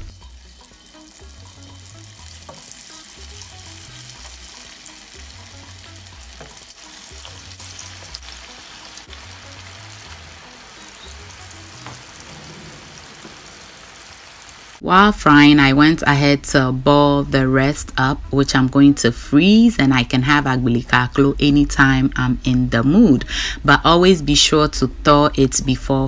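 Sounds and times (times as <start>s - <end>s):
dough frying in hot oil: 0.0s - 14.8s.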